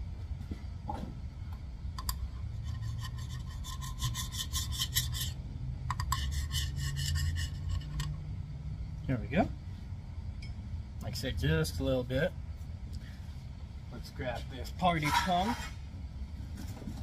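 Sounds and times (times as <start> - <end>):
steady low hum: 0.0 - 17.0
scraper scraping metal: 2.6 - 8.1, 14.9 - 15.8.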